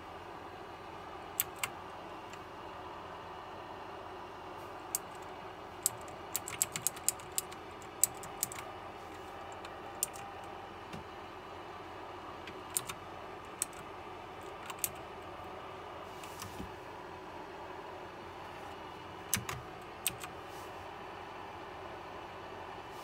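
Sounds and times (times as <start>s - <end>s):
mechanical keyboard clicking: 1.4s - 1.7s, 4.9s - 8.7s, 9.6s - 10.3s, 12.5s - 13.8s, 14.4s - 15.0s, 19.3s - 20.4s.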